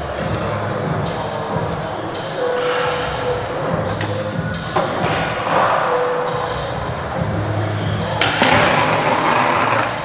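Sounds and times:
skateboard wheels rolling on concrete: 3.5s - 10.0s
skateboard pop and clack: 8.2s - 10.0s.

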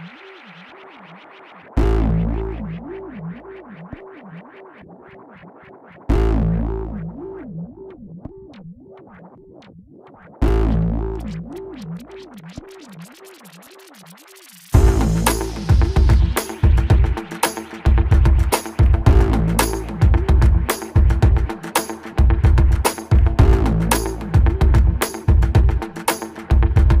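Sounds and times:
heavy bass hits: 14.8s - 17.1s, 17.9s - 21.5s, 22.2s - 25.8s.

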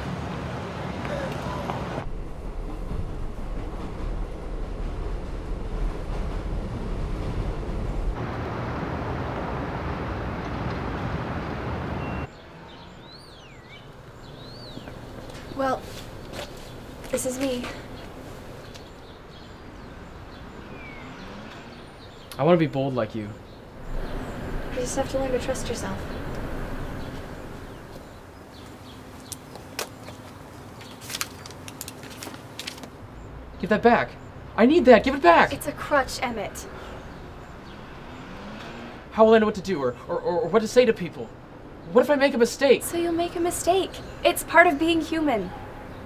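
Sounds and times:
city traffic noise: 0.0s - 46.0s
rumble inside rail car: 2.0s - 10.8s
bird whistling: 12.0s - 12.4s.

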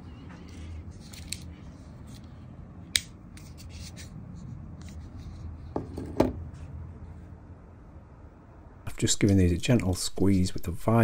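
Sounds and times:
pocket knives being handled: 0.4s - 4.1s
knives knocking on wooden bench: 5.7s - 6.4s.

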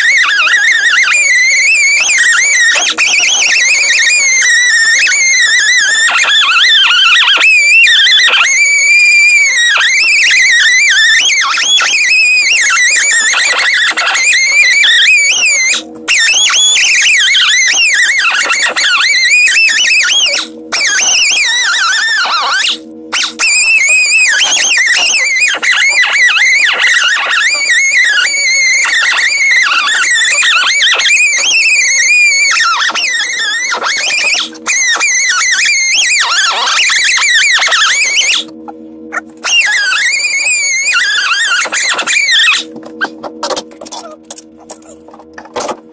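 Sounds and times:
rotary tool whining against metal: 0.0s - 45.9s.

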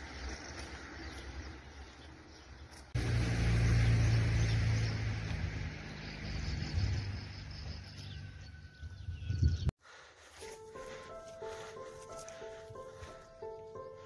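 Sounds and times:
low engine hum: 0.0s - 8.8s
outdoor background noise: 0.0s - 14.0s.

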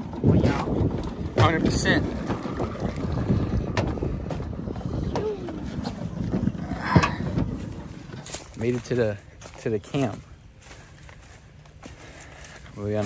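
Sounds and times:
outboard motor running: 0.0s - 8.6s
wind buffeting microphone: 0.0s - 9.6s.

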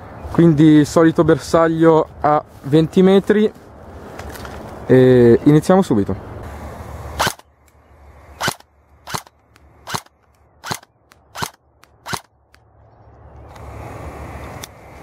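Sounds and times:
airsoft gun sharp cracks: 7.2s - 7.5s, 8.4s - 12.6s.

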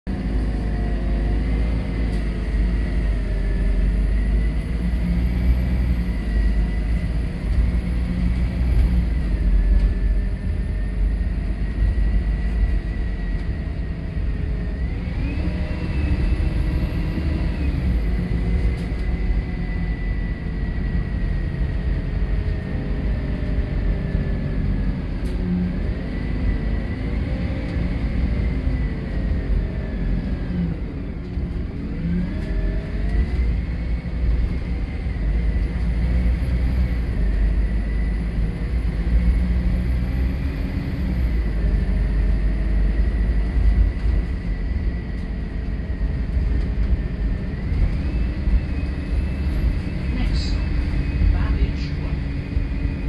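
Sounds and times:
bus engine rumble: 0.0s - 53.0s
drivetrain whine: 0.1s - 53.0s.

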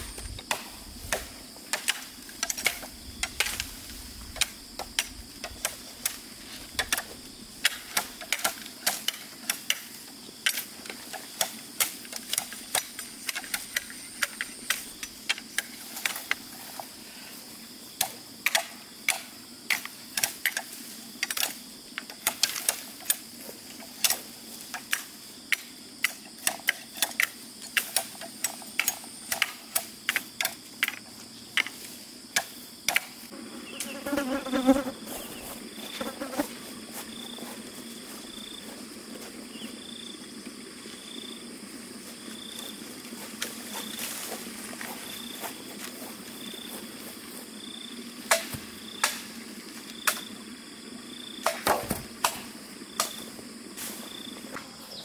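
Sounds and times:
insects droning: 0.0s - 55.0s
blade chopping bamboo: 48.2s - 49.3s.

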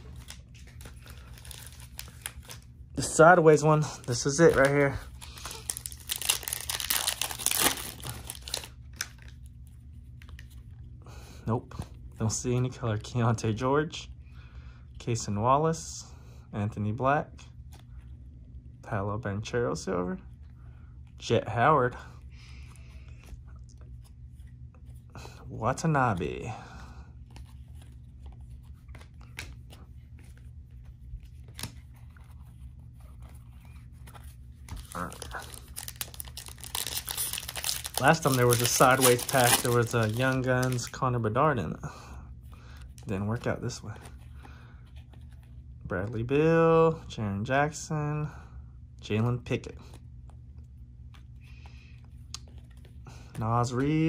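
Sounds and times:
wrapper crinkling and tearing: 0.1s - 2.6s, 3.9s - 9.4s, 34.6s - 41.0s
cards clicking and rustling: 4.0s - 9.4s, 33.1s - 41.0s.

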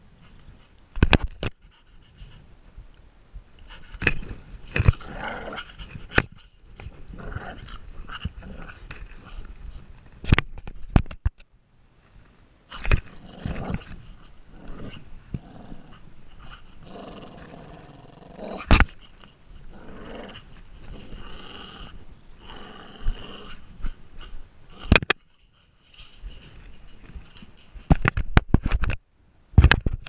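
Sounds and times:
dog growling in play: 3.7s - 9.6s, 12.8s - 25.1s.

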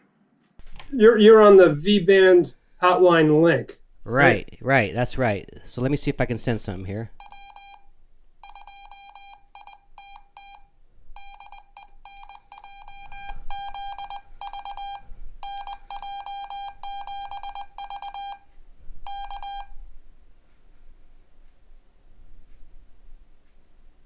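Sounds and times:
morse code beeps: 7.2s - 19.8s.

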